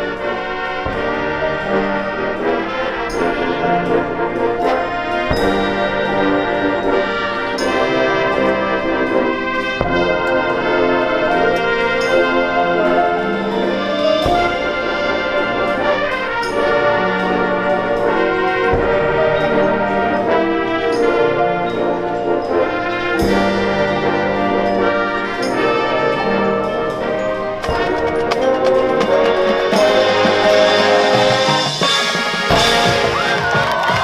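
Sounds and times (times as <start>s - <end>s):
loud percussion hits: 0.0s - 15.5s, 27.6s - 34.0s
marching band brass chords: 0.0s - 34.0s.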